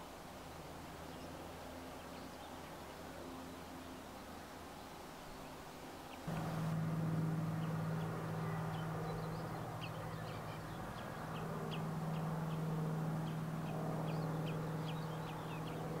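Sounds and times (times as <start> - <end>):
birds chirping: 3.4 - 16.0
steady low hum: 6.1 - 16.0.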